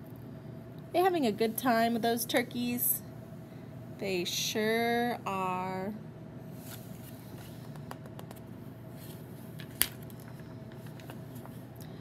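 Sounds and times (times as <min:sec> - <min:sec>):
faint room hum: 0:00.0 - 0:12.0
paper pages rustling: 0:06.6 - 0:08.4, 0:09.0 - 0:11.6
sharp paper snap: 0:09.6 - 0:10.1.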